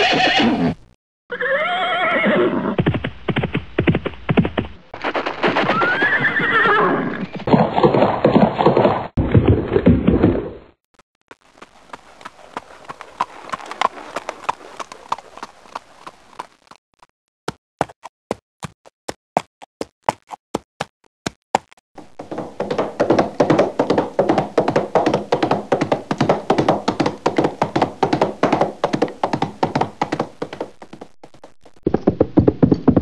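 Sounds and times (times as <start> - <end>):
horse hoofbeats: 2.7 - 10.4, 11.3 - 16.8, 21.6 - 33.0.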